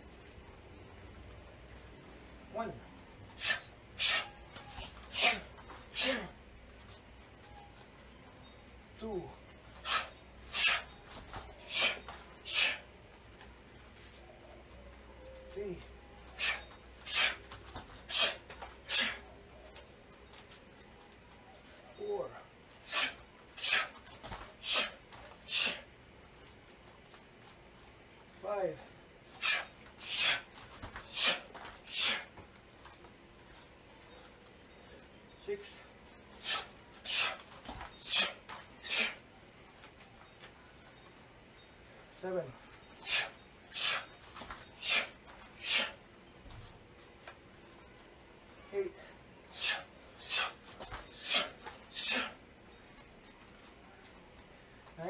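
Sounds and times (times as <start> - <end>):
sharp hissing exhalations: 3.3 - 6.2, 9.8 - 11.0, 11.6 - 12.9, 16.3 - 17.4, 18.0 - 19.3, 22.8 - 25.9, 29.3 - 32.4, 36.3 - 39.3, 43.0 - 46.0, 49.5 - 52.4.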